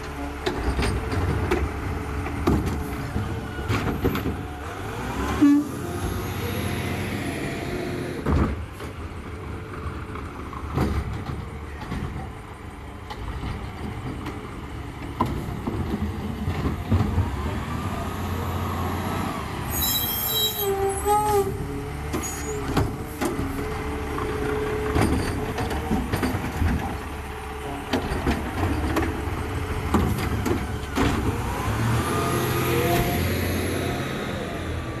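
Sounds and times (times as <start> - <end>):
clanks and knocks: 0.0 - 4.6, 10.0 - 17.4, 22.0 - 31.5
garbage truck engine running: 21.1 - 35.0.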